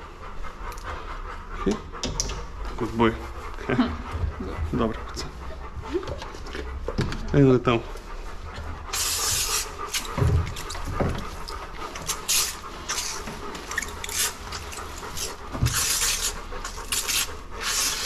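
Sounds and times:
dog panting: 0.0 - 18.0.

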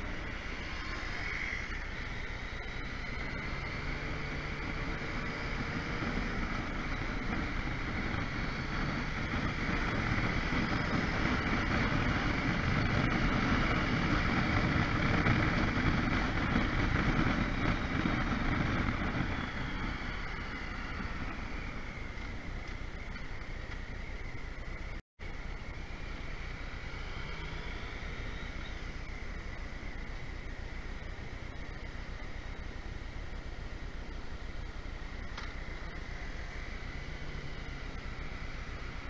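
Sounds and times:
motorcycle engine running: 0.0 - 39.0
road noise: 0.0 - 39.0
wind rush: 3.2 - 22.6.

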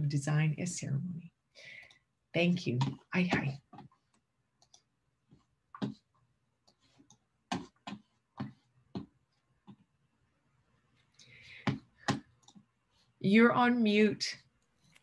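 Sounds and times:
faint clicks and taps: 1.8 - 10.0, 10.9 - 12.8.

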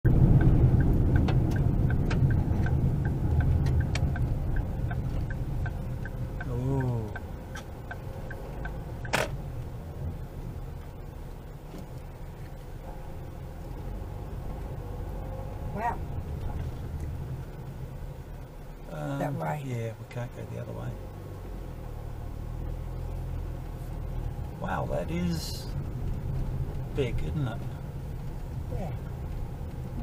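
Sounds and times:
tyre and road rumble: 0.0 - 30.0
steady light ticking: 0.1 - 11.6.

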